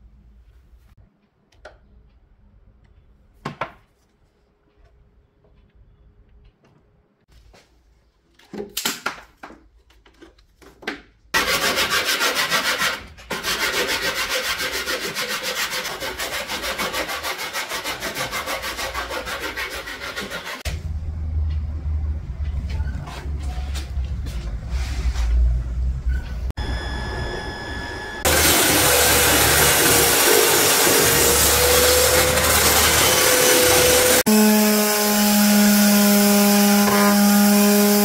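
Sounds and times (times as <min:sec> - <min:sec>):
sanding block rubbing: 0:11.4 - 0:20.7
low rumble: 0:20.7 - 0:28.2.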